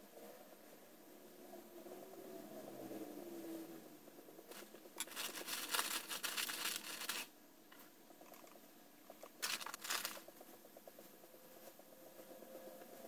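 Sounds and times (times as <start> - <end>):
plastic bag crinkling: 4.5 - 7.3, 9.3 - 10.2.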